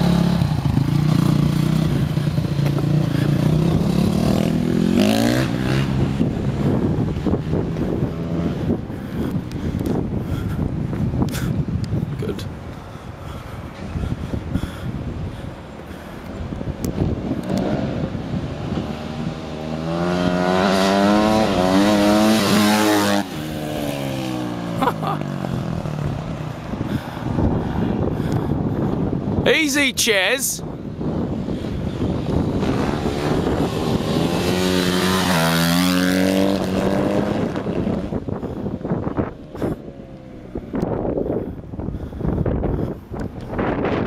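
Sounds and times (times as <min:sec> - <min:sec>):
dirt bike engine revving: 0:00.0 - 0:08.8, 0:17.4 - 0:26.2, 0:31.7 - 0:38.2.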